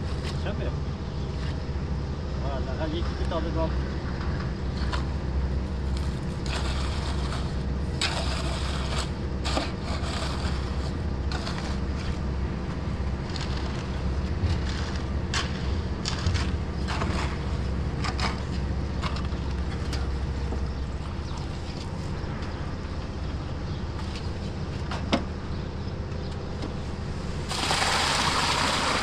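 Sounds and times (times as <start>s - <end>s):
low machine hum: 0.0s - 29.0s
shovels scraping wet concrete: 5.9s - 12.2s, 13.2s - 20.1s.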